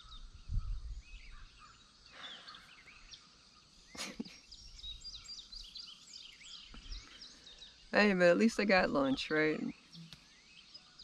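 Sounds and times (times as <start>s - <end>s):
birds chirping and singing: 0.0s - 11.0s.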